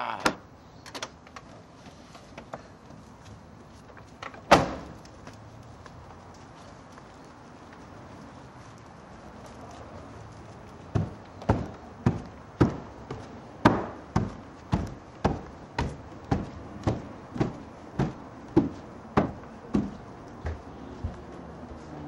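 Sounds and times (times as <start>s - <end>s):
footsteps on wooden stairs: 10.7s - 22.0s.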